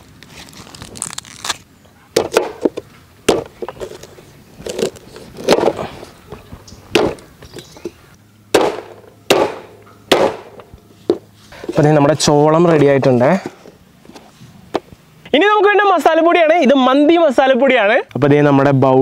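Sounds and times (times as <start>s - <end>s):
knife chopping on wooden board: 8.6s - 11.2s.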